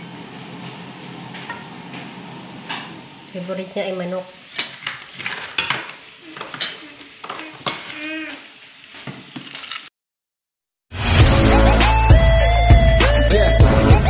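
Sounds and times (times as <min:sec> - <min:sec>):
loud music: 0:10.9 - 0:14.0.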